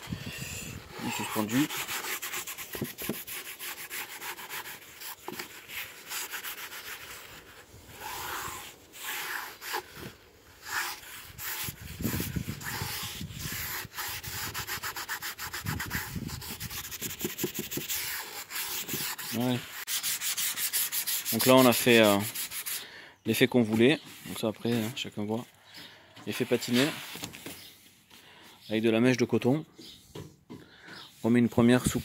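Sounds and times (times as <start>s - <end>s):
rag rubbing on wood: 0.2s - 22.8s.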